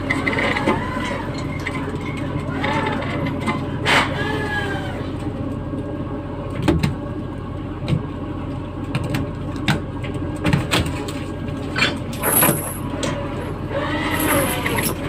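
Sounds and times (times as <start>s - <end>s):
boat machinery drone: 11.6s - 15.0s.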